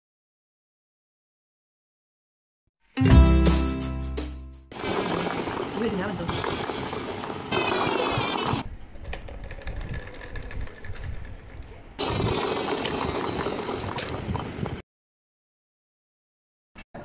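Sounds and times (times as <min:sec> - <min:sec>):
toy car wheels rolling on marble: 0:04.8 - 0:14.0.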